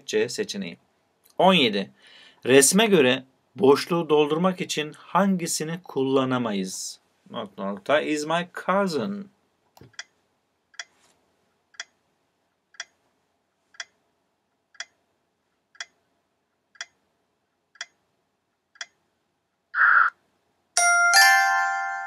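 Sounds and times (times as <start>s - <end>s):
timer ticking: 11.7s - 12.0s, 12.7s - 13.0s, 13.7s - 14.0s, 14.7s - 15.1s, 15.7s - 16.1s, 16.7s - 17.1s, 17.7s - 18.1s, 18.7s - 19.1s.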